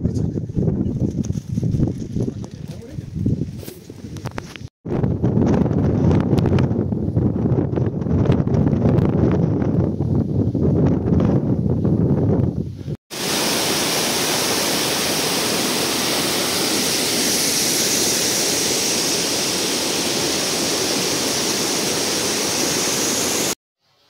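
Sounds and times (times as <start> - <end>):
wind buffeting microphone: 0.0 - 23.6
running water rushing: 13.1 - 23.6.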